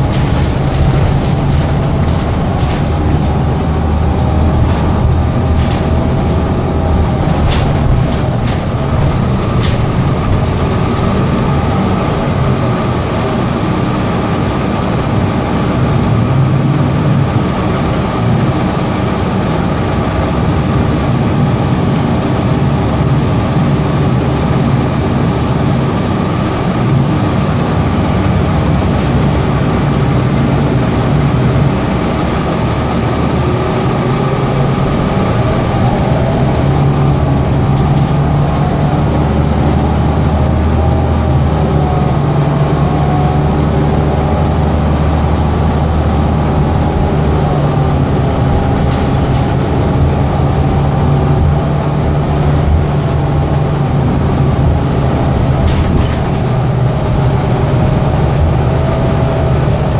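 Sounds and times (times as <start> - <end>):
bus drivetrain and road rumble: 0.0 - 59.9
brief rattles: 48.6 - 50.0.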